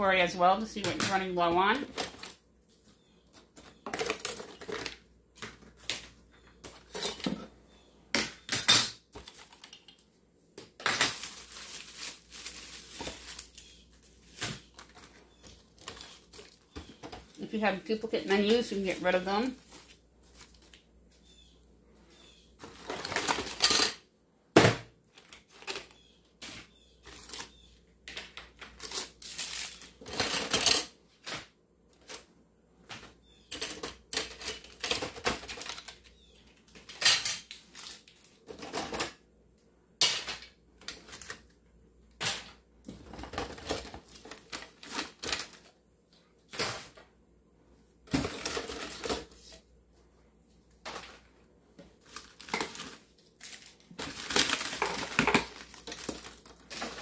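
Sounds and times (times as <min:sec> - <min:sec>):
plastic packaging crinkling: 0:09.1 - 0:20.8, 0:28.3 - 0:30.8, 0:51.9 - 0:57.0.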